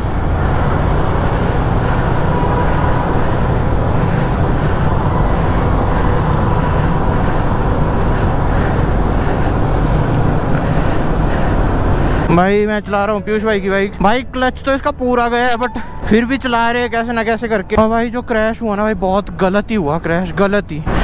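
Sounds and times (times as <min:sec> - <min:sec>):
motorcycle engine running: 0:00.0 - 0:13.3.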